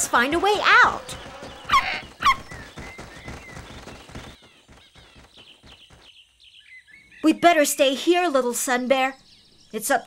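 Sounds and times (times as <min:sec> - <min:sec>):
quick cartoon footsteps: 0:00.0 - 0:06.6
small birds chirping: 0:00.0 - 0:10.0.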